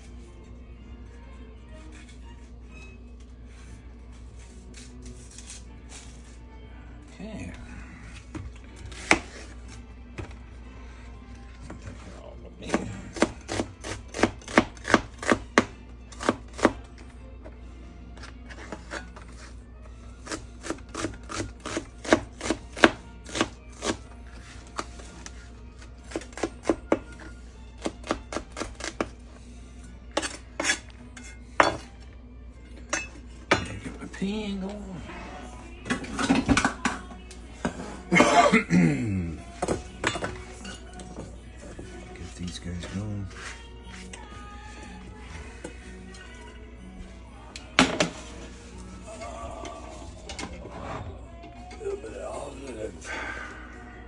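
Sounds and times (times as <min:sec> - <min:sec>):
knife chopping on wooden board: 0:12.7 - 0:16.8, 0:20.3 - 0:24.0
person coughing: 0:38.0 - 0:39.4.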